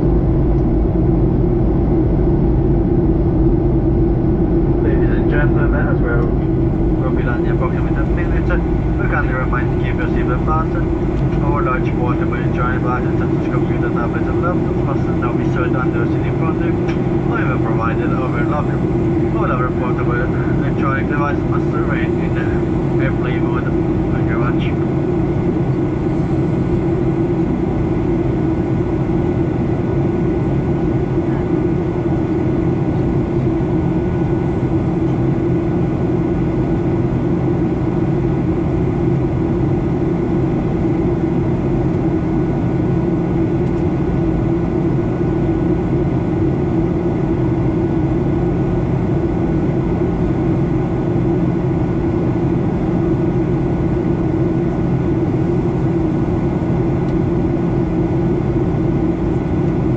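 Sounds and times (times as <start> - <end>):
rushing airflow: 0.0 - 30.4
airplane cabin engine hum: 0.0 - 59.9.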